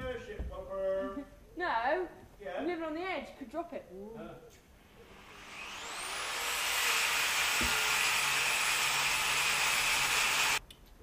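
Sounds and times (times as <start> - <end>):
angle grinder cutting steel: 5.0 - 10.6.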